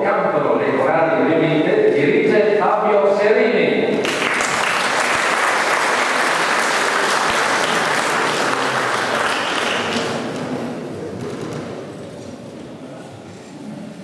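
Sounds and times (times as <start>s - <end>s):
audience applauding: 4.0s - 10.6s.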